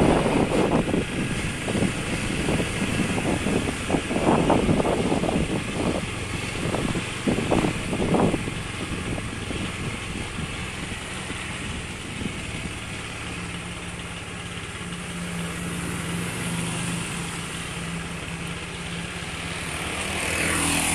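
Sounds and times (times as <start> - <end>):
wind noise on microphone: 0.0 - 13.3
small motorbike engine running: 0.0 - 20.9.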